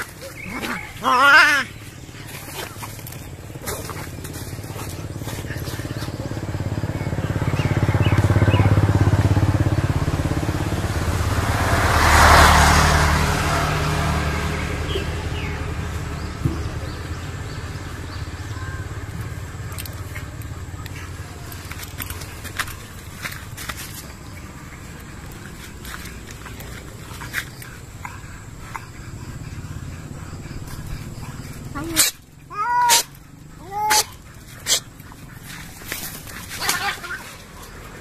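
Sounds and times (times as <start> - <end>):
motorcycle engine passing: 0.0 - 38.0.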